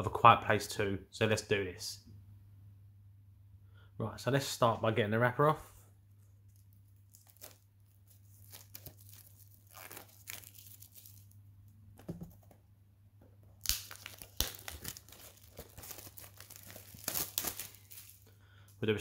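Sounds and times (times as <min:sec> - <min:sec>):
plastic wrap tearing and crinkling: 0:06.5 - 0:11.4, 0:13.5 - 0:18.3.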